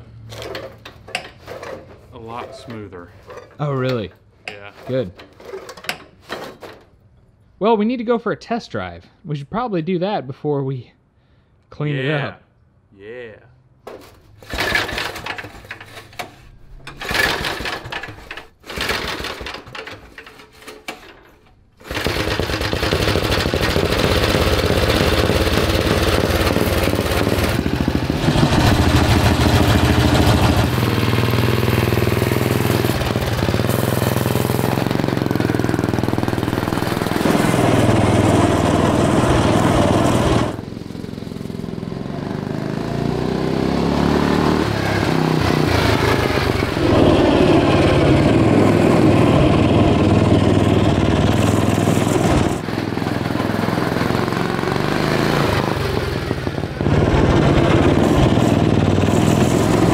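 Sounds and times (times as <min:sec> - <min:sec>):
go-kart engine revving: 0:14.4 - 0:16.0, 0:16.9 - 0:20.4, 0:21.8 - 0:59.9.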